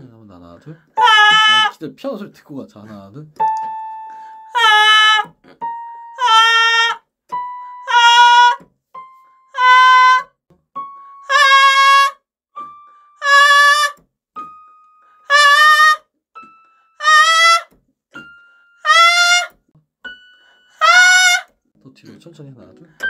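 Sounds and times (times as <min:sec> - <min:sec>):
piano single notes: 0:03.4 - 0:04.6, 0:05.4 - 0:06.7, 0:07.3 - 0:10.1, 0:10.8 - 0:11.5, 0:12.6 - 0:13.8, 0:14.4 - 0:15.3, 0:16.4 - 0:17.0, 0:18.1 - 0:19.3, 0:20.0 - 0:21.2.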